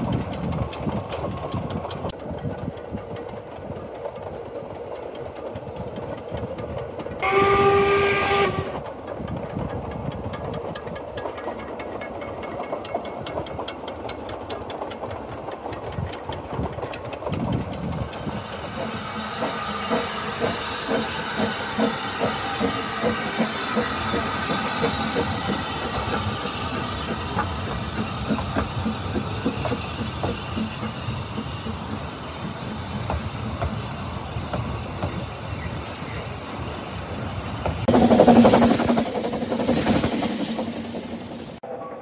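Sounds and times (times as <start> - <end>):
steam locomotive exhaust chuffs: 0.0 - 41.6
steam hiss: 18.1 - 41.6
rail clatter: 37.6 - 41.6.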